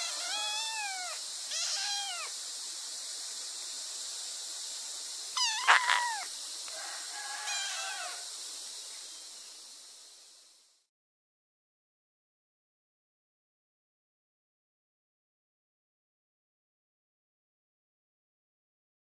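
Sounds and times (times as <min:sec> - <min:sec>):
kitten meowing: 0:00.0 - 0:02.3, 0:05.4 - 0:06.3, 0:07.5 - 0:08.2
steady hiss: 0:00.0 - 0:10.9.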